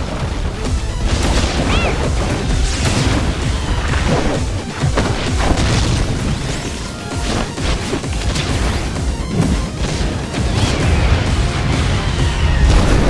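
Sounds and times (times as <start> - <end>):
action music: 0.0 - 13.0
crashes and booms: 7.4 - 13.0.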